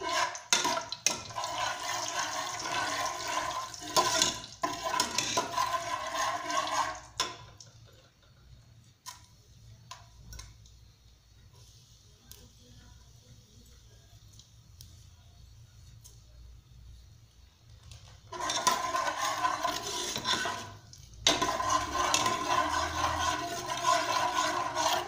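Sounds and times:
metal ladle scraping pot: 0.0s - 7.6s, 18.3s - 25.0s
spices sizzling in oil: 18.3s - 25.0s.

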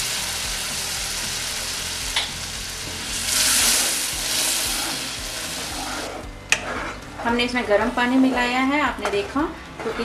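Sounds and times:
water sizzling in hot pan: 0.0s - 6.2s.

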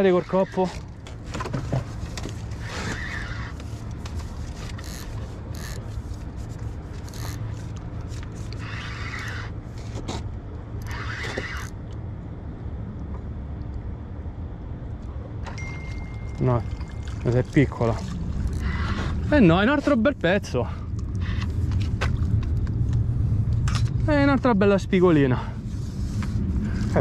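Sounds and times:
steady low hum: 0.0s - 27.0s
fishing reel cranking: 4.8s - 5.8s, 7.0s - 7.6s, 8.6s - 9.5s, 10.8s - 11.8s, 18.5s - 18.8s.

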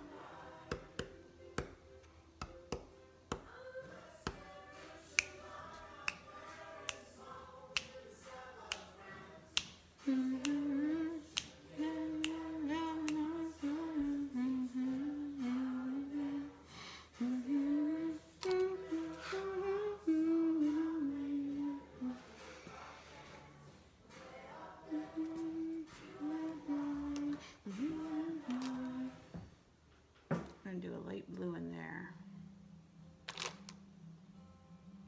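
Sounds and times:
person singing slow melody: 0.0s - 29.6s
finger snaps: 5.1s - 15.7s, 17.2s - 21.1s, 25.0s - 29.0s.

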